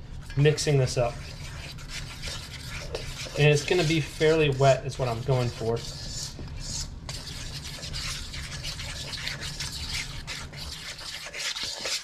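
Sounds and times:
low steady hum: 0.0 - 11.4
utensil scraping dough in bowl: 0.2 - 12.0.

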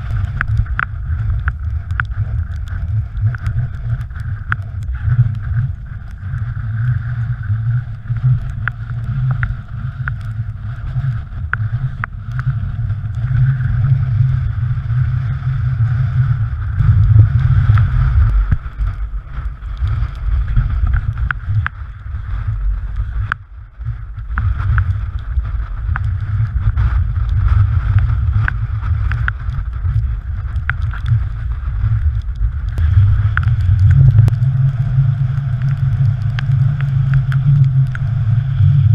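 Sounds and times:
small clicks and knocks: 0.0 - 6.5, 8.2 - 10.4, 25.9 - 26.2, 28.0 - 31.2, 32.0 - 34.5
wind buffeting microphone: 0.0 - 38.9.

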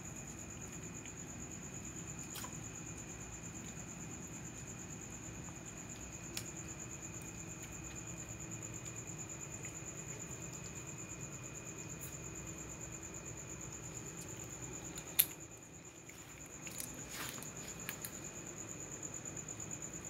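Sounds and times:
cricket trilling: 0.0 - 20.0
faint scratchy rustles: 16.0 - 18.2.

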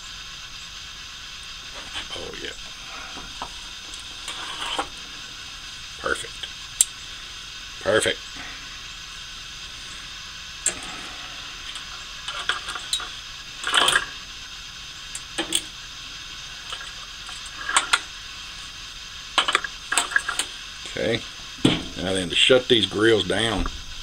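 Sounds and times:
steady background hiss: 0.0 - 24.0
metal tongs clinking on grill grate: 11.7 - 14.2, 19.4 - 20.5.

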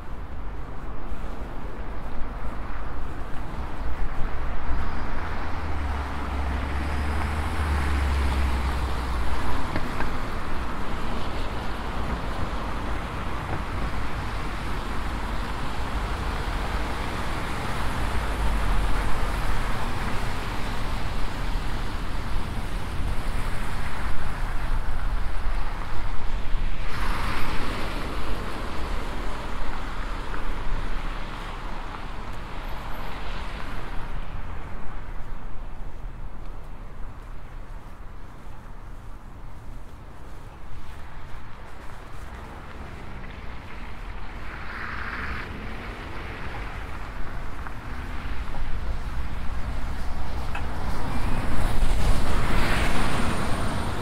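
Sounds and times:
street traffic passing: 0.0 - 54.0
bicycle riding noise: 34.3 - 54.0.

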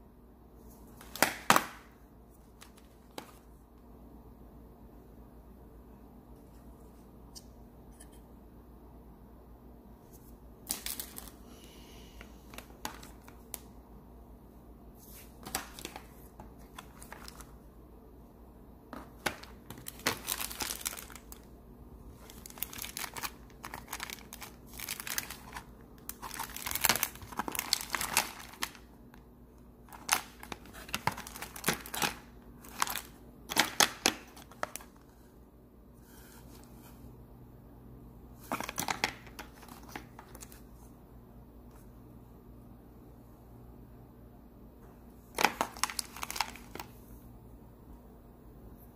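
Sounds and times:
plastic bags crinkling: 10.6 - 11.4, 12.4 - 13.6, 15.1 - 17.6, 19.0 - 29.0, 29.8 - 35.0, 38.4 - 40.6, 45.3 - 46.9.

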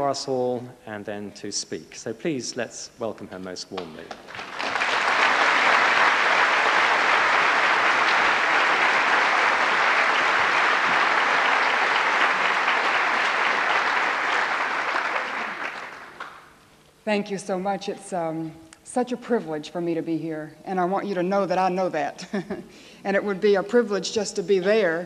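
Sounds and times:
audience applauding: 4.1 - 16.6.

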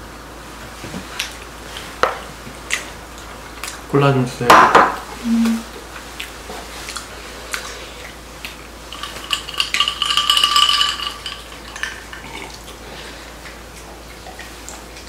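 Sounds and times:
steady ringing tone: 8.9 - 12.3
chopsticks clinking on bowls: 8.9 - 12.6
cola fizzing: 8.9 - 12.8.

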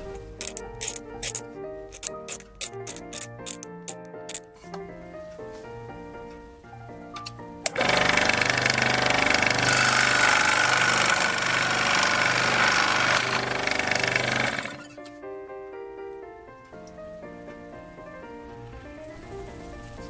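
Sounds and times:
power saw whining: 7.7 - 14.9.

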